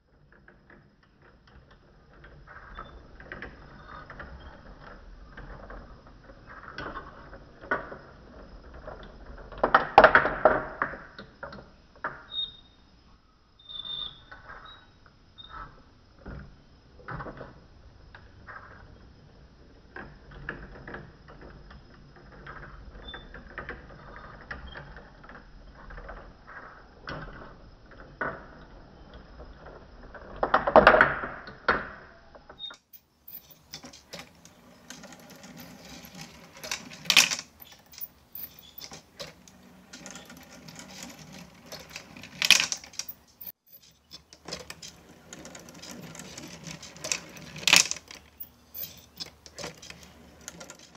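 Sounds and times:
marbles clicking and clattering: 32.9s - 50.9s.

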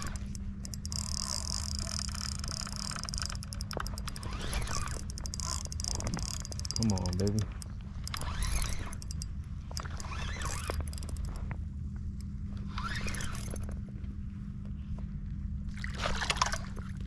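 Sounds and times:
fishing reel being cranked: 0.0s - 11.4s, 12.7s - 13.7s
steady low hum: 0.0s - 17.0s.

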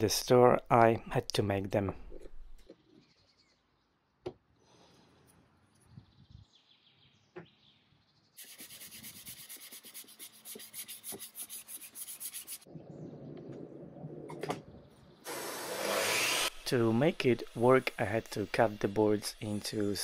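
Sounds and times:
sponge scrubbing wood: 8.4s - 12.7s.

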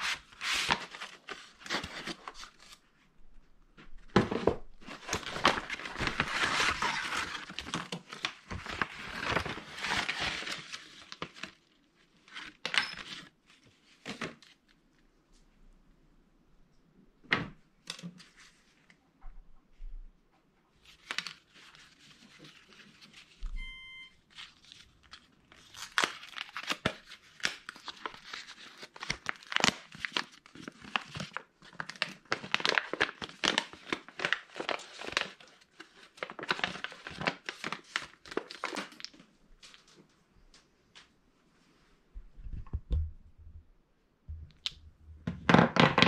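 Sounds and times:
paper envelope tearing and rustling: 0.0s - 2.8s, 4.2s - 14.6s, 24.3s - 39.1s.

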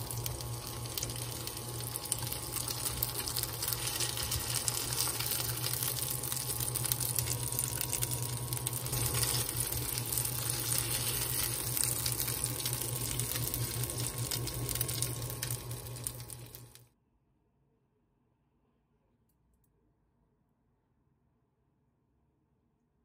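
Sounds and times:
meat sizzling in oil: 0.0s - 16.8s
steady low hum: 0.0s - 16.9s.

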